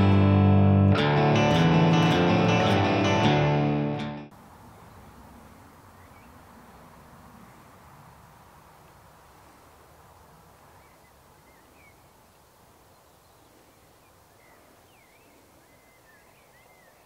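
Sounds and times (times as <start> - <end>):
birds chirping and whistling: 14.3 - 17.0.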